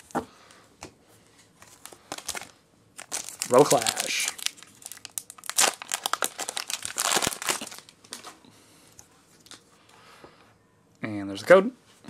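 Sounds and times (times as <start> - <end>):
foil wrapper tearing and crinkling: 1.7 - 8.3.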